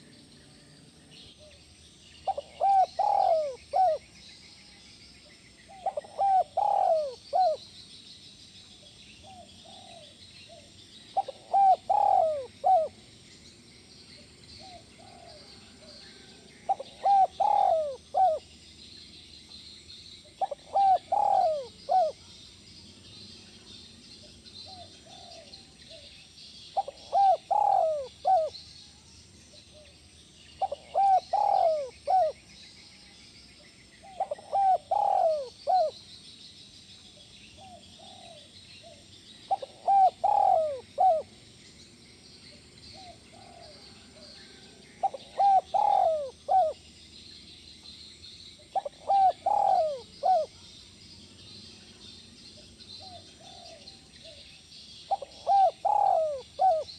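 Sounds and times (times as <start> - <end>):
dove cooing: 2.2 - 4.2, 5.7 - 7.7, 9.2 - 13.0, 14.6 - 18.5, 20.4 - 22.4, 24.6 - 26.1, 26.8 - 28.6, 30.6 - 32.5, 34.0 - 36.0, 37.6 - 41.4, 42.9 - 46.8, 48.7 - 50.7, 53.0 - 54.5, 55.1 - 56.9.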